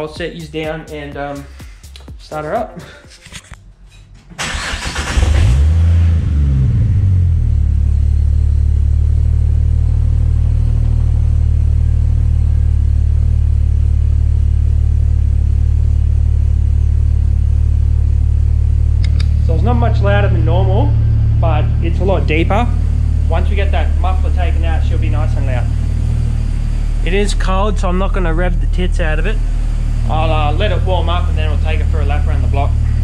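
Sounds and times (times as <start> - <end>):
starter motor cranking: 4.4 - 5.7
car engine revving and idling: 4.4 - 33.0.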